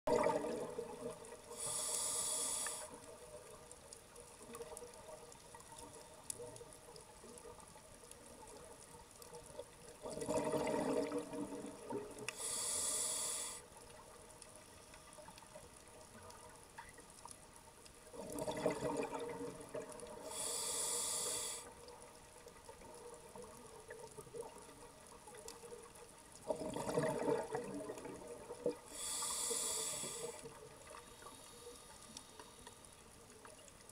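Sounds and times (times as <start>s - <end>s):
exhaled bubbles burbling: 0.1s - 1.3s, 10.0s - 12.2s, 18.2s - 20.1s, 26.4s - 28.8s
faint water noise: 0.1s - 33.9s
regulator hissing inhale: 1.5s - 3.1s, 12.3s - 13.8s, 20.2s - 21.8s, 28.9s - 32.9s.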